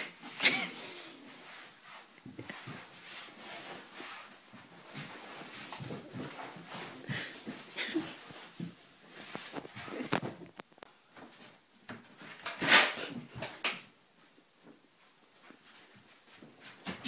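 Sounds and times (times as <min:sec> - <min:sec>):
people moving about rustling: 0:00.0 - 0:12.4.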